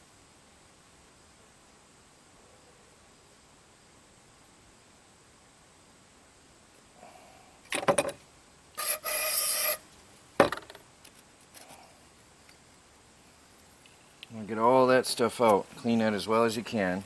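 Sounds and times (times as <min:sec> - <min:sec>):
harsh rasping of hand tool: 0:08.8 - 0:09.8.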